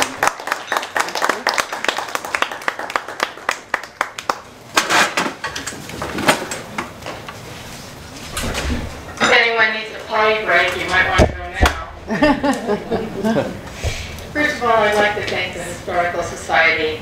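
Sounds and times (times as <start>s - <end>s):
audience clapping: 0.0s - 4.6s.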